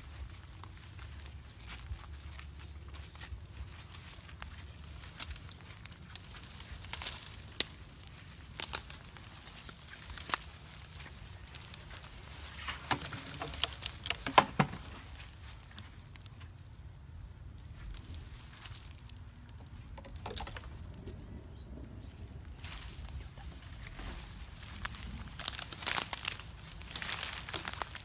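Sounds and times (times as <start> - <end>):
brush rustling: 0.0 - 16.5, 22.4 - 28.0
footsteps through dry leaves: 0.0 - 16.9, 17.6 - 19.4, 22.4 - 28.0
twigs crackling and snapping: 3.0 - 16.4, 17.7 - 21.1, 22.5 - 28.0.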